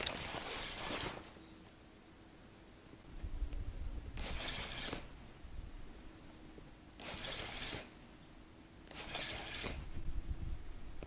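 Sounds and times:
spinning reel being cranked: 0:04.2 - 0:05.0, 0:08.9 - 0:09.8.

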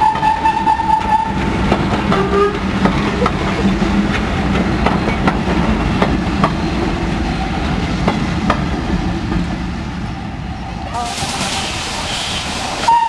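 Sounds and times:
train wheels clacking on rail joints: 0:00.0 - 0:09.6
low rumble of train: 0:00.0 - 0:13.0.

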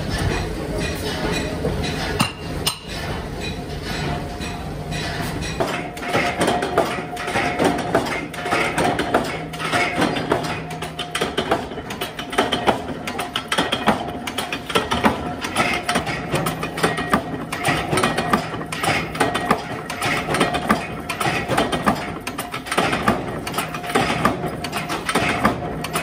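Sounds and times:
low machine hum: 0:00.0 - 0:26.0
machinery clattering: 0:00.0 - 0:26.0.

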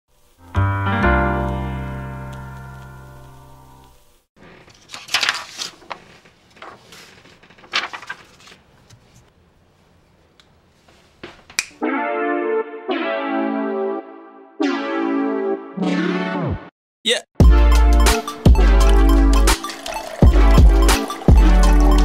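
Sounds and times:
electric piano chord: 0:00.4 - 0:03.9
keyboard music: 0:00.4 - 0:03.9, 0:11.8 - 0:16.7, 0:17.4 - 0:22.0
paper laid on wooden table: 0:04.4 - 0:09.3
paper rustling: 0:04.4 - 0:09.3.

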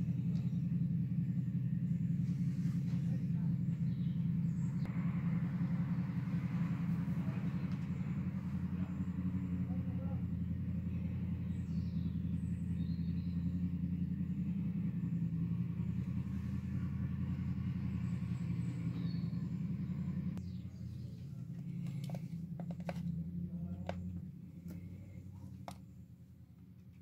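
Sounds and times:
low buzzing hum: 0:00.0 - 0:27.0
plastic clicks and knocks: 0:21.8 - 0:23.1.

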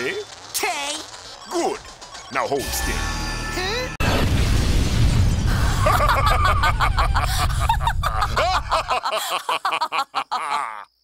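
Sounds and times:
cartoon explosion rumble: 0:04.0 - 0:08.8
cartoon characters laughing: 0:05.7 - 0:11.0.

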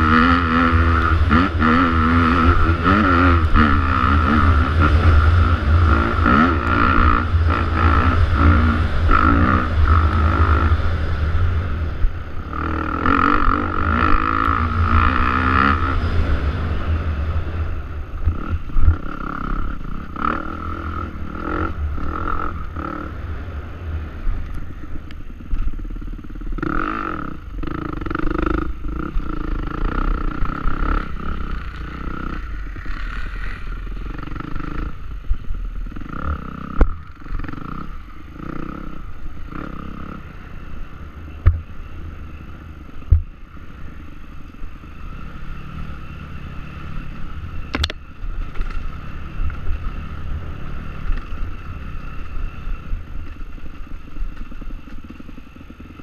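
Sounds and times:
motorcycle engine revving: 0:00.0 - 0:56.0.

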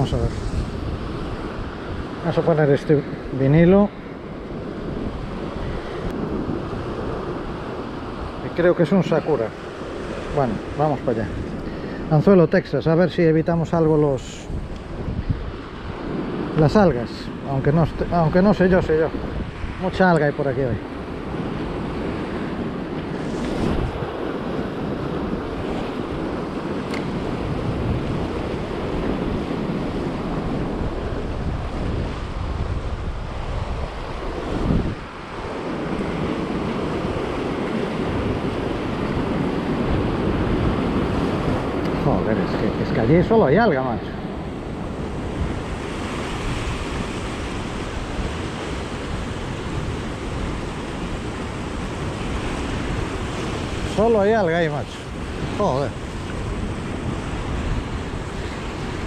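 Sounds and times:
surf washing over rocks: 0:00.0 - 0:59.0
wind buffeting microphone: 0:00.0 - 0:59.0.

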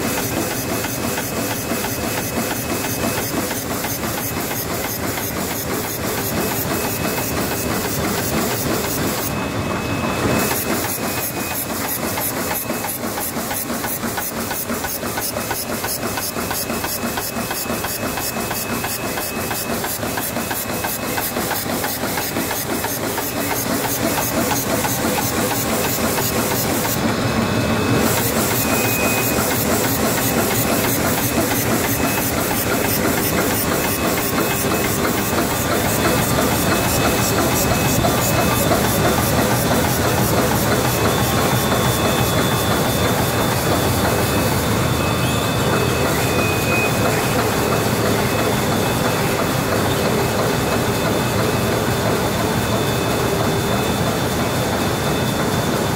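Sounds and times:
machine clattering: 0:10.3 - 0:27.2, 0:28.0 - 0:44.7.

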